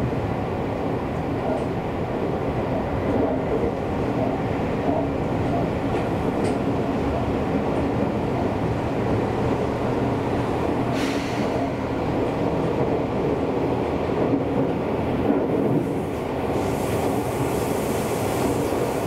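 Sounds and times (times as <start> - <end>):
train wheels on rails: 0.8 - 19.0
brief hiss: 10.9 - 11.6.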